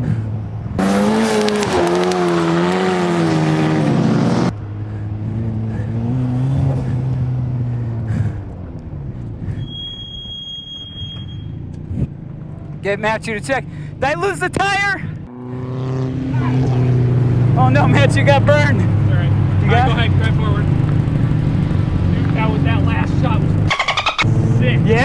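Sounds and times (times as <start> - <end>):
car engine revving: 0.0 - 9.5
high steady beep: 23.7 - 24.3.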